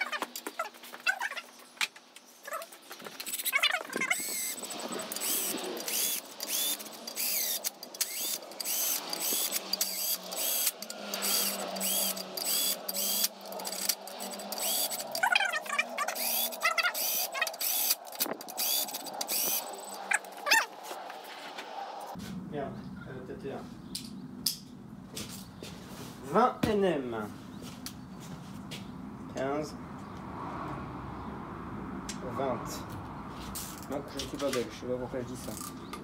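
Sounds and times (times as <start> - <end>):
ratchet wrench clicking: 4.2 - 15.4, 16.0 - 20.0.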